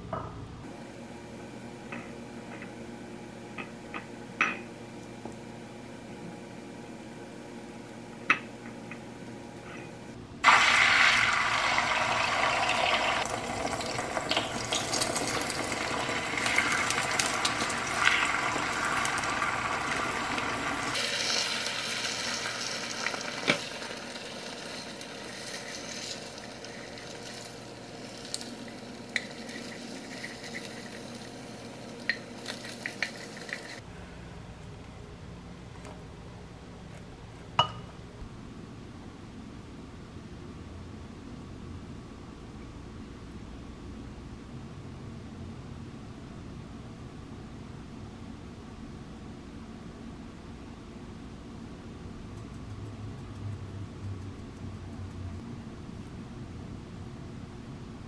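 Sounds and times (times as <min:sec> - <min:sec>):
eggs sizzling in a frying pan: 0:10.4 - 0:33.8.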